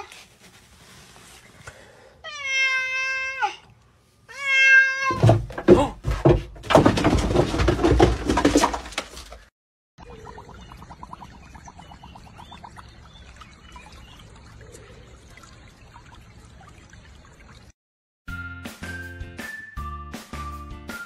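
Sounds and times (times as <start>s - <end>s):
cat meowing: 2.2s - 3.6s, 4.3s - 5.2s
rustling and knocking: 5.1s - 9.5s.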